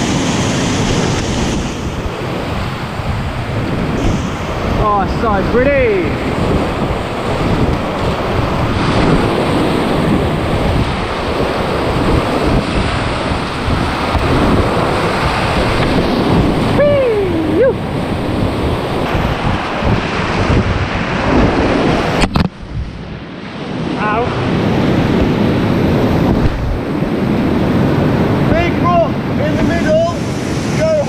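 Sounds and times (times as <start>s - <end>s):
whitewater rapids rushing: 0.0s - 22.3s
wavering shout: 16.7s - 17.8s.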